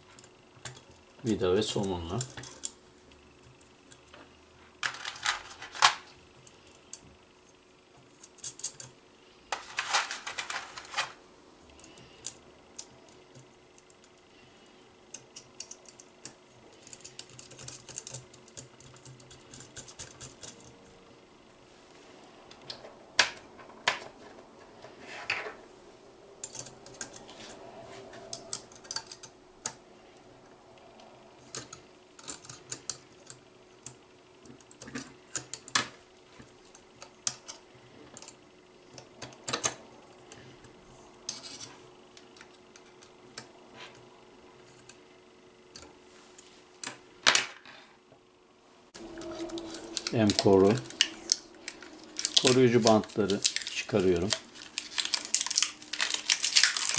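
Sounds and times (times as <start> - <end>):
screws and nuts rattling in tray: 9.5 - 11.2.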